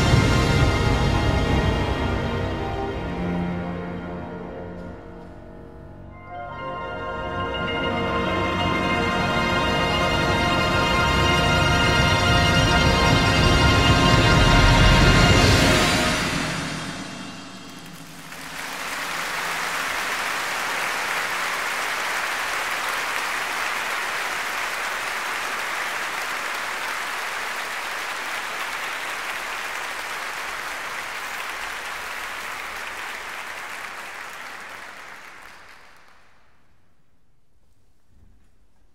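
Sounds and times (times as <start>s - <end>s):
audience applauding: 17.6s - 36.5s.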